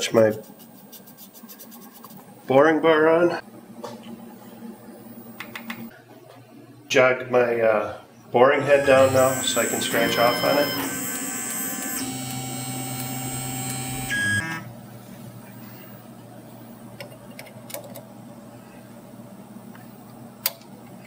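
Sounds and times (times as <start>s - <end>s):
mill axis drive whining: 8.4s - 14.7s.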